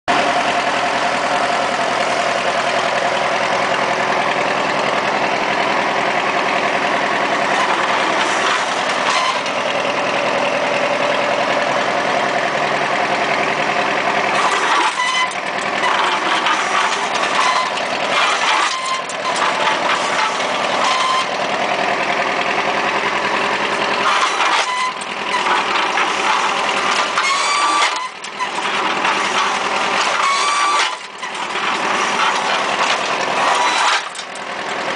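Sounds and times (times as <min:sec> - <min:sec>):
hydraulic whine: 0:00.1 - 0:34.9
tractor engine idling: 0:00.1 - 0:34.9
metal knocks and clanks: 0:14.4 - 0:21.4, 0:24.0 - 0:34.9.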